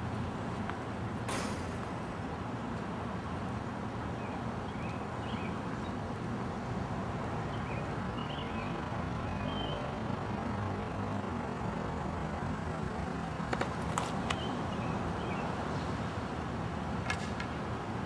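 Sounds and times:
outdoor background rumble: 0.0s - 18.0s
sharp crack: 1.3s - 1.9s.

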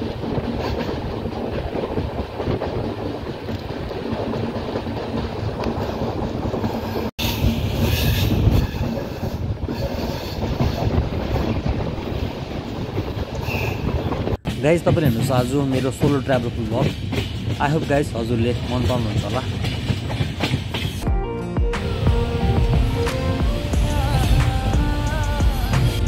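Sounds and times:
train wheels rumbling on rails: 0.0s - 21.1s, 21.8s - 26.0s.

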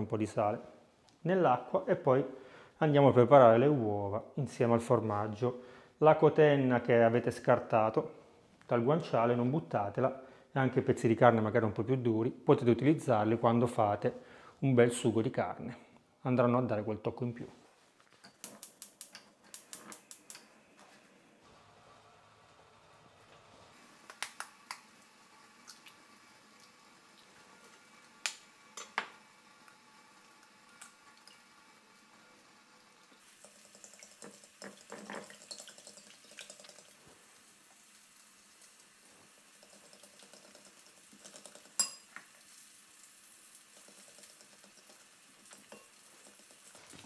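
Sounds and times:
faint sizzle in a pan: 18.5s - 47.0s.

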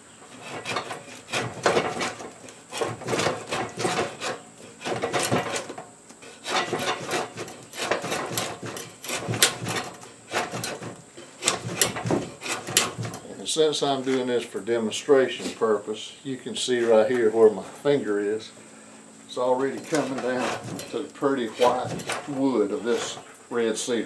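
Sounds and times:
draw knife scraping bark: 0.2s - 13.3s, 19.4s - 23.9s.

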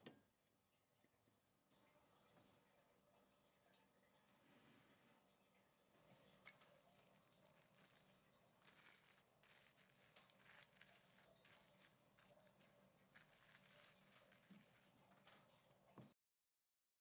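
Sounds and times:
plastic cling film crinkling: 6.4s - 15.7s.

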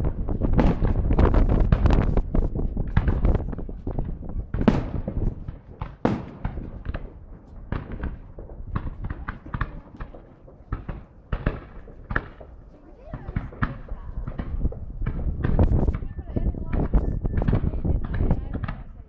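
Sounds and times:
firework cracks and pops: 0.0s - 19.0s
wind rumble on microphone: 0.0s - 19.0s
firework shells bursting: 0.4s - 16.1s.

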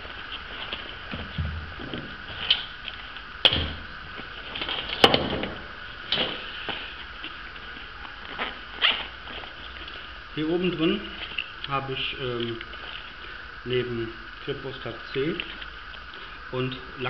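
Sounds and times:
rustling: 0.0s - 11.6s.

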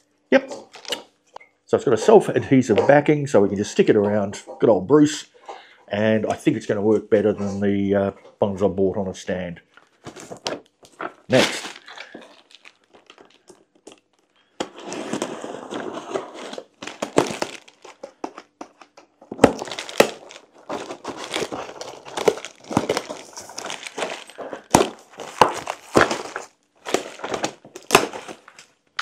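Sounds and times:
packaging crinkling and rustling: 0.7s - 1.1s, 9.8s - 29.0s.

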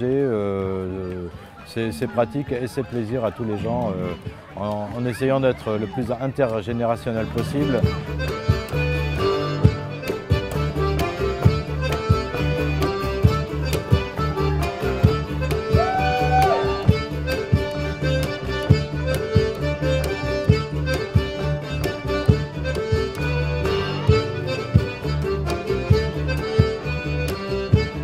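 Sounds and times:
folk dance music: 0.0s - 28.0s
fiddle: 1.0s - 28.0s
double bass: 6.9s - 28.0s.

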